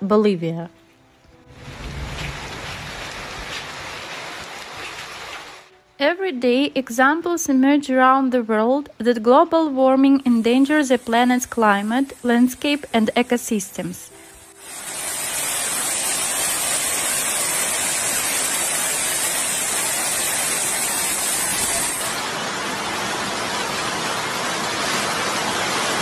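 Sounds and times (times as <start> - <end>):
hail and rain pelting down: 1.5 - 5.7, 14.7 - 26.0.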